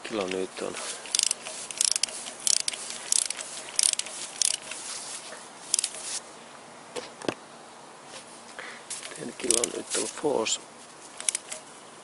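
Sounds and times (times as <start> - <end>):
ratchet wrench clicking: 1.0 - 4.9, 5.7 - 6.2, 9.4 - 9.8, 11.2 - 11.6.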